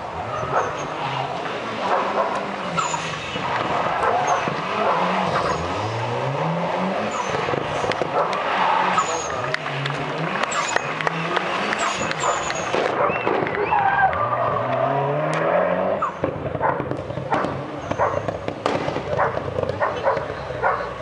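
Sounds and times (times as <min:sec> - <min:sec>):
car engine revving: 0:00.0 - 0:21.0
tyres skidding: 0:00.0 - 0:21.0
sharp cracks: 0:16.2 - 0:20.3.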